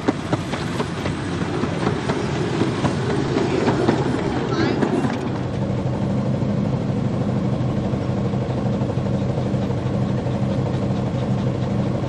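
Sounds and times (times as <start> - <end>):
steam locomotive pulsing hum: 0.0 - 12.0.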